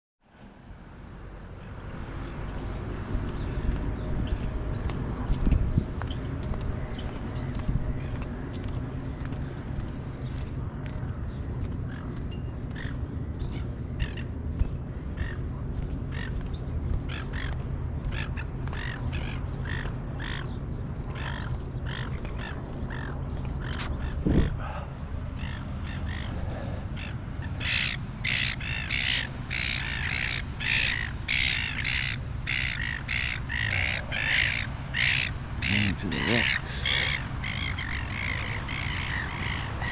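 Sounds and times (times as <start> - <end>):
small birds chirping: 1.4 - 24.6, 25.2 - 39.9
gulls squawking: 11.4 - 39.9.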